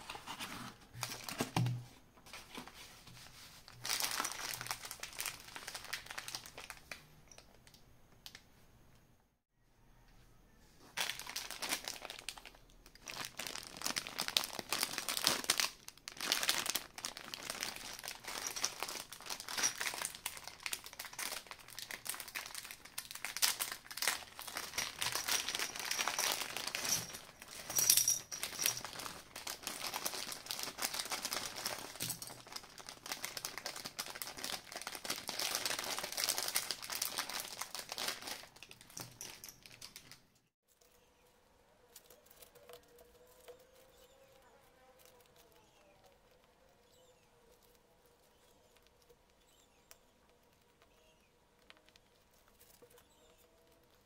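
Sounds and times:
plastic bag crinkling: 3.6s - 8.4s, 10.9s - 40.2s.

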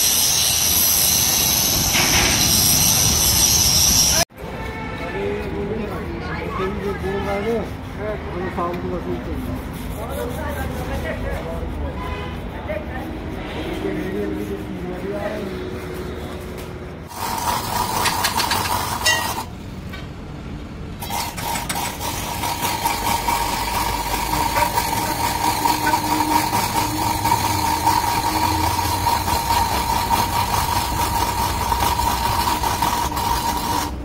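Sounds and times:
angle grinder grinding metal: 0.0s - 4.2s, 17.1s - 19.5s, 21.0s - 34.0s.

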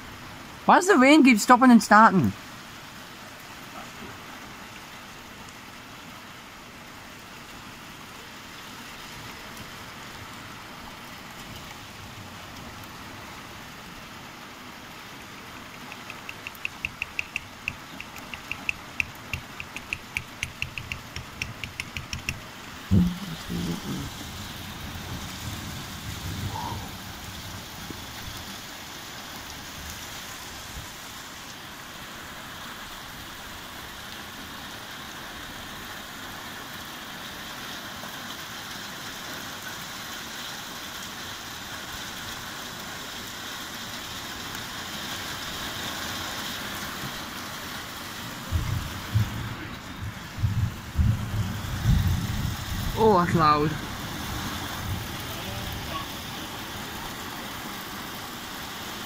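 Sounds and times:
steady rain: 0.0s - 59.0s
fast clicks: 15.8s - 22.4s.

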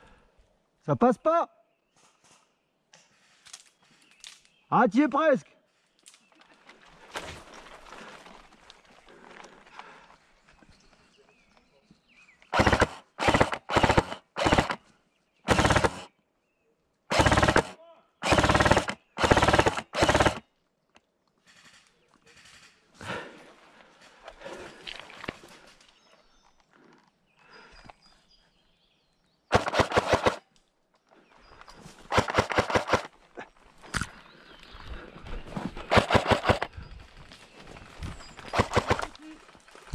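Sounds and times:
airsoft gun full-auto bursts: 12.5s - 14.8s, 15.5s - 16.1s, 17.1s - 20.5s, 29.5s - 30.4s, 32.1s - 33.1s, 35.9s - 36.7s, 38.5s - 39.1s.

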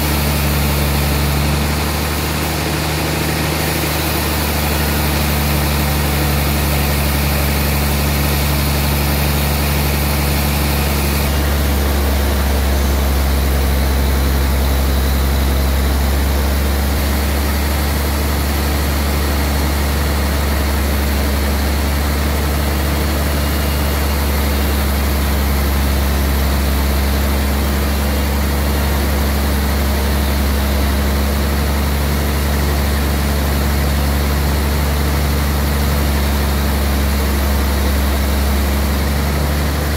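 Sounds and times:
sawmill machinery humming: 0.0s - 39.9s.

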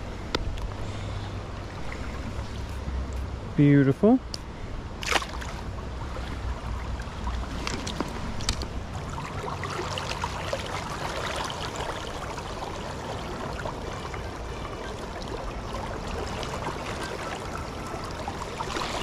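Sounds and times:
flowing river water: 0.0s - 19.0s
small splashes: 5.0s - 19.0s.

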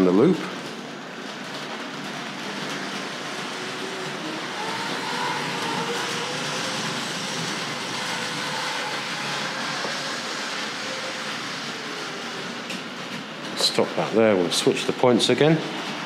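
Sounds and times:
model train wheels rumbling: 0.0s - 16.0s
electric motor whine: 3.7s - 12.6s.

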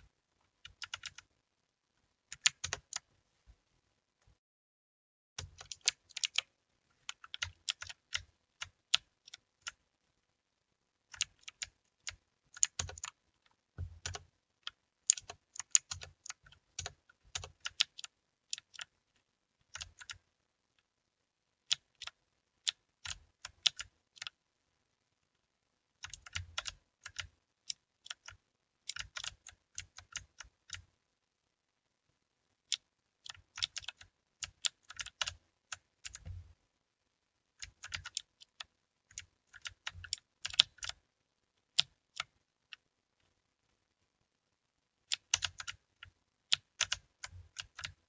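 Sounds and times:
mechanical keyboard typing: 0.6s - 1.3s, 2.3s - 3.1s, 5.4s - 9.8s, 11.1s - 13.2s, 13.8s - 18.9s, 19.6s - 20.2s, 21.7s - 24.4s, 26.0s - 30.8s, 32.7s - 36.4s, 37.6s - 41.0s, 45.1s - 48.0s.

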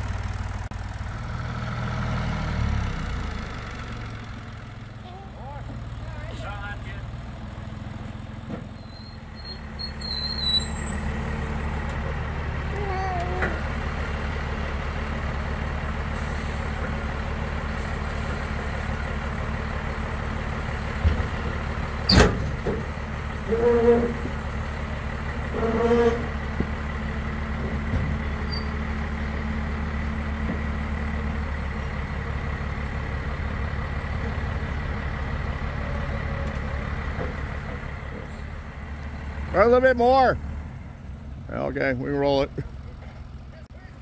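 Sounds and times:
vehicle engine running: 0.0s - 44.0s
short squeals: 8.7s - 11.7s, 25.5s - 26.4s.

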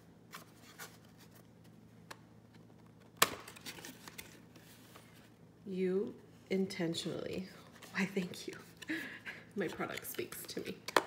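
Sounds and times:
card crinkling: 2.5s - 5.3s.

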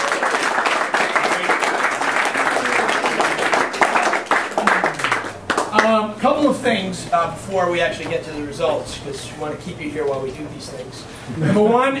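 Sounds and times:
crowd applauding: 0.0s - 5.9s.

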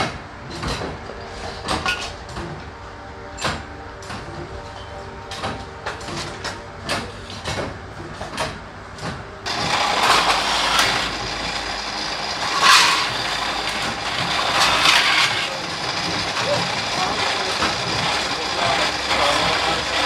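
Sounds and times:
pillar drill drilling metal: 9.5s - 20.0s.

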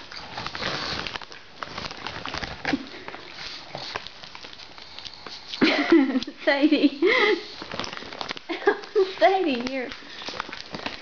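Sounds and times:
dog claws clicking on tiles: 7.1s - 11.0s.

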